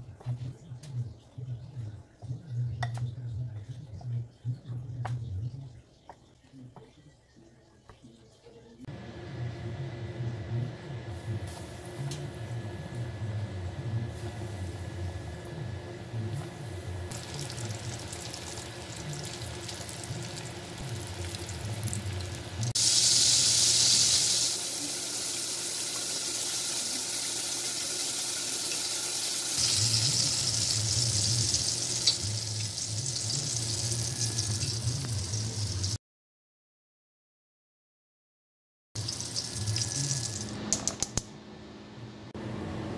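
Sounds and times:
liquid boiling with hiss: 0:16.3 - 0:36.0, 0:39.0 - 0:40.5.

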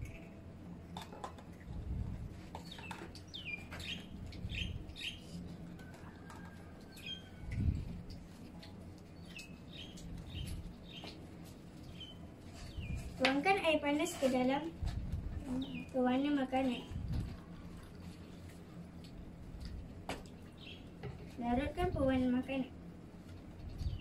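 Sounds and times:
small birds chirping: 0:02.5 - 0:05.4, 0:06.9 - 0:13.2, 0:15.4 - 0:17.2, 0:20.3 - 0:21.0, 0:23.6 - 0:24.0.

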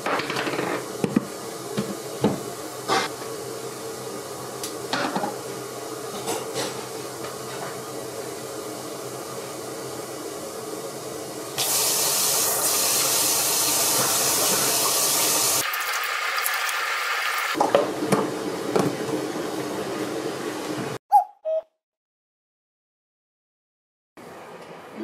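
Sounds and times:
tap water running into basin: 0:11.6 - 0:18.8.

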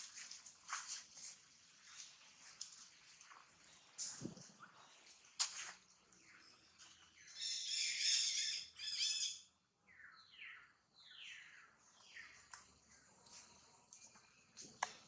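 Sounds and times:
harsh screechy animal calls: 0:07.4 - 0:09.4.

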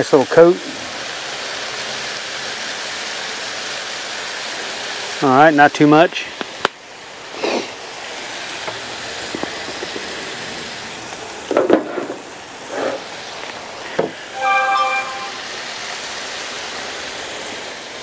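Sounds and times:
chicken sizzling on a griddle: 0:00.0 - 0:14.4, 0:15.4 - 0:18.0
short steady tone: 0:14.4 - 0:15.5.

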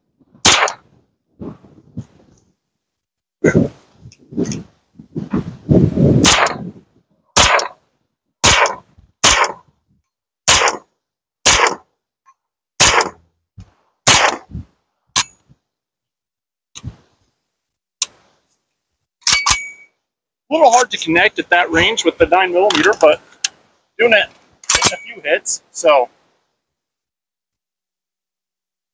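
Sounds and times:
gunshots with echo: 0:00.4 - 0:00.8, 0:06.2 - 0:06.6, 0:07.4 - 0:07.8, 0:08.4 - 0:09.6, 0:10.5 - 0:10.8, 0:11.5 - 0:11.8, 0:12.8 - 0:13.2, 0:14.1 - 0:14.5.

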